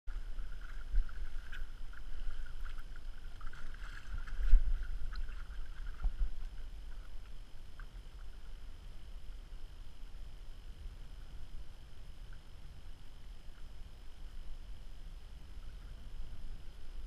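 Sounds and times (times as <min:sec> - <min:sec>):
waves lapping against boat hull: 0:00.1 - 0:08.6.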